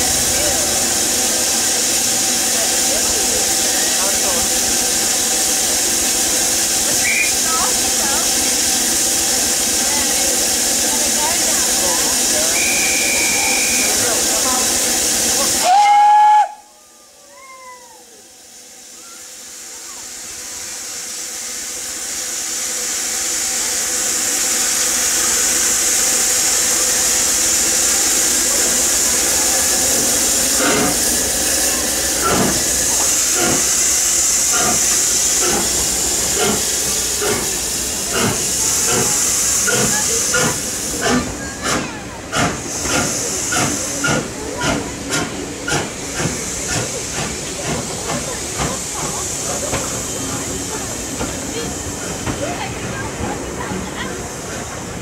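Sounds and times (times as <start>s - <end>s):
steam locomotive exhaust beats: 0.0s - 16.7s, 18.2s - 55.0s
steam hissing from drain cocks: 18.4s - 55.0s.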